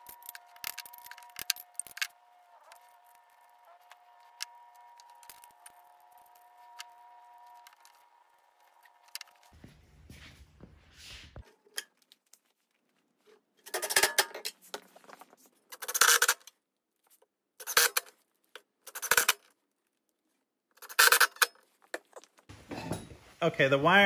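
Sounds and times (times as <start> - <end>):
metal parts clinking and rattling: 0.0 - 8.0, 13.6 - 14.9, 15.7 - 16.5, 17.6 - 18.1, 18.8 - 19.5, 20.8 - 23.0.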